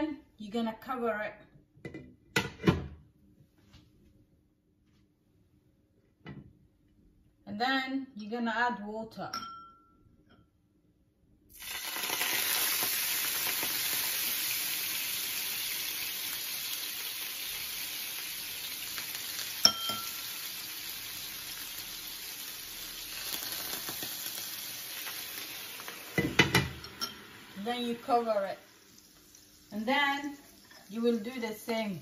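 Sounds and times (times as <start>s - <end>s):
metal spoon clinking on pan: 9.3s - 9.9s, 19.6s - 20.3s, 26.4s - 27.3s
water sizzling in hot pan: 11.5s - 32.0s.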